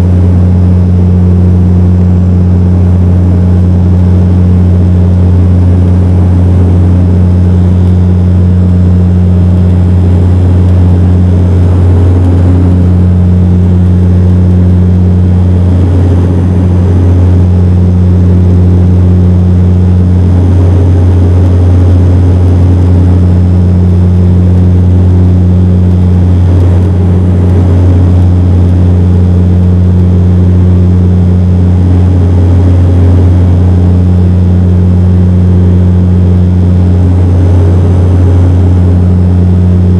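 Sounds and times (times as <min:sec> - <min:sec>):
airplane cabin propeller drone: 0:00.0 - 0:39.9
higher propeller hum: 0:00.0 - 0:39.9.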